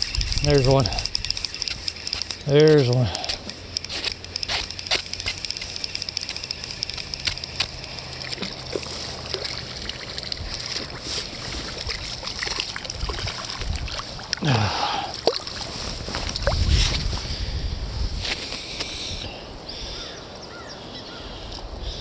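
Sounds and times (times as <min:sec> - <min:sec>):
sharp clicks: 0:00.0 - 0:08.7
water sloshing and splashing: 0:07.8 - 0:17.1.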